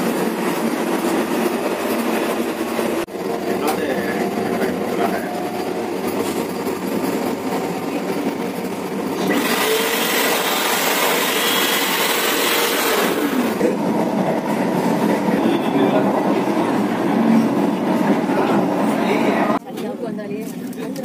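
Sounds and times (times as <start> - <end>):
hand dryer blowing air: 0.0 - 15.4
moving train noise: 0.0 - 19.6.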